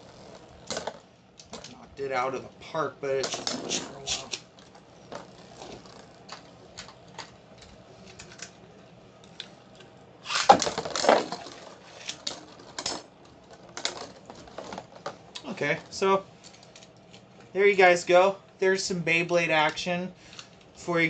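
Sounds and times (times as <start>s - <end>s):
plastic clatter: 3.2s - 4.0s, 10.4s - 15.2s.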